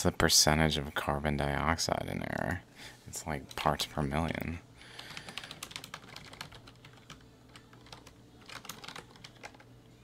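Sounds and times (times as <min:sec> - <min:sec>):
keyboard typing: 0:05.0 - 0:09.7.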